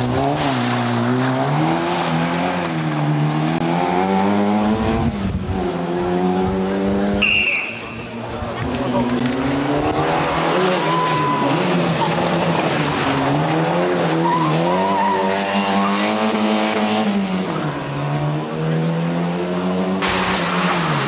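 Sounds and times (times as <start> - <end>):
rally car engine revving: 0.0 - 7.2, 7.9 - 21.0
tyres squealing on tarmac: 7.2 - 8.2, 10.6 - 12.2, 14.0 - 16.0.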